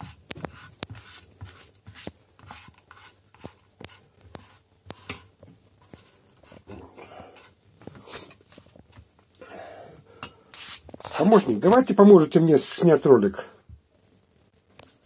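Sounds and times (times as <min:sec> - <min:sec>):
spatula scraping in frying pan: 0:00.0 - 0:08.3, 0:10.5 - 0:11.2.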